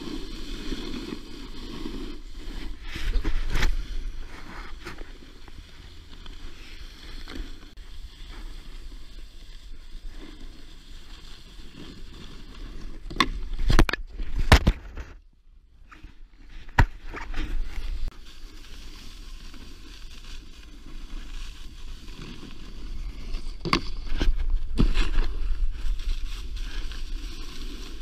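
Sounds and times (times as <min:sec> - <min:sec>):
snowboard scraping over snow: 0:00.0 - 0:13.7, 0:15.9 - 0:28.0.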